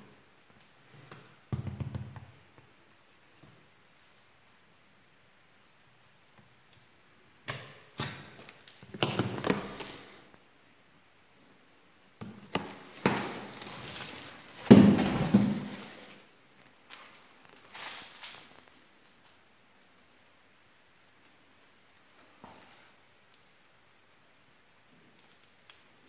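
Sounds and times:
cardboard box knocking and rustling: 14.6s - 16.0s.

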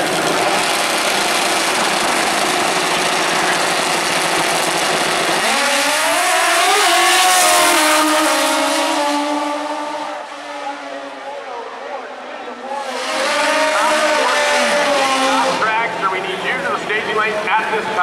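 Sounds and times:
motorcycle engines accelerating: 0.0s - 18.0s.

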